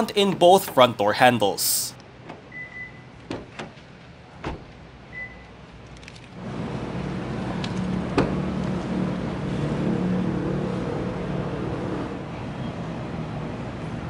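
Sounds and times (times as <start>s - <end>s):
low engine-like rumble: 3.0s - 14.0s.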